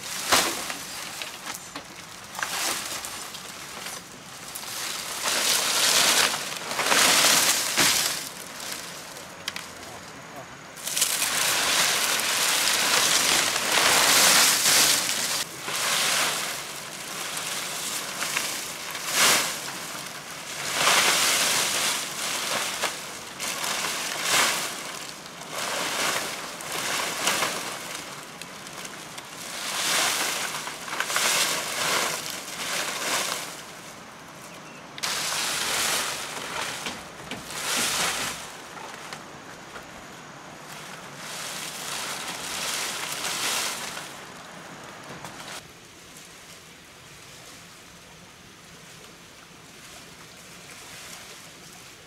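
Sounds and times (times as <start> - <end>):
palm leaves rustling: 0.0 - 52.0.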